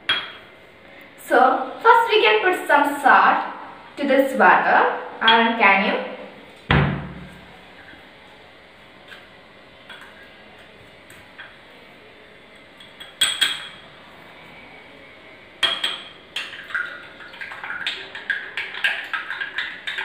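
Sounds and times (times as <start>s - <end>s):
spoon clinking against glass: 12.8s - 13.8s.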